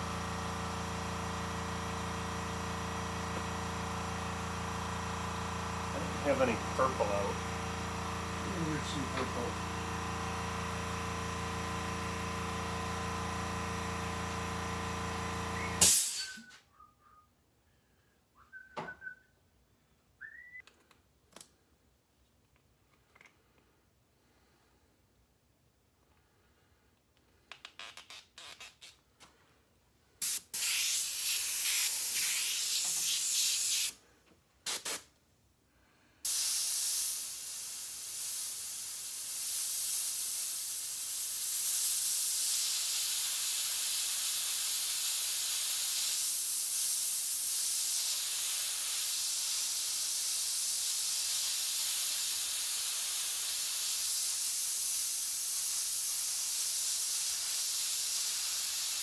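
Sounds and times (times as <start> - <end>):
airbrush spraying paint: 2.2 - 9.6, 30.2 - 34.0, 34.6 - 35.1, 36.2 - 59.0.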